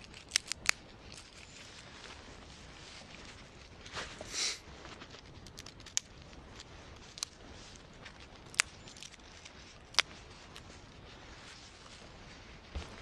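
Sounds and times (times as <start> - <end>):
twigs snapping: 0.0 - 1.7, 5.0 - 10.9
branches rustling: 0.0 - 13.0.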